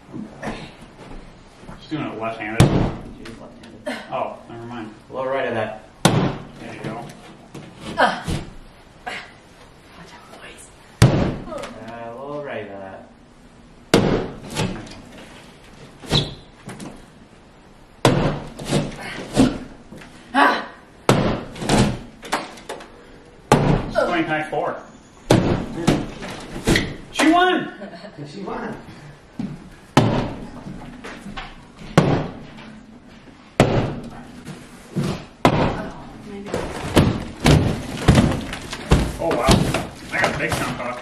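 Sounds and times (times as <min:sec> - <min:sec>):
sledgehammer smashing drywall: 0:06.0 - 0:06.5, 0:11.0 - 0:11.5, 0:13.9 - 0:14.8, 0:18.0 - 0:19.7, 0:21.1 - 0:22.1, 0:23.5 - 0:24.0, 0:25.3 - 0:26.9, 0:30.0 - 0:30.4, 0:31.9 - 0:32.5, 0:33.6 - 0:34.1, 0:35.4 - 0:35.8, 0:36.8 - 0:40.8
breaking board knocks: 0:11.0 - 0:11.5, 0:18.0 - 0:19.7, 0:21.1 - 0:22.6, 0:23.5 - 0:24.0, 0:25.3 - 0:27.0, 0:30.0 - 0:30.4, 0:32.0 - 0:32.4, 0:36.7 - 0:40.8.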